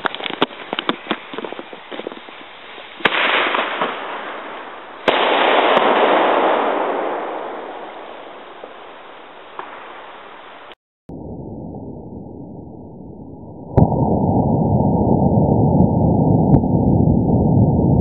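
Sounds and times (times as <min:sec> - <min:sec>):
firecracker bang rumbling: 0:00.0 - 0:10.8
firecracker crack: 0:00.0 - 0:10.8.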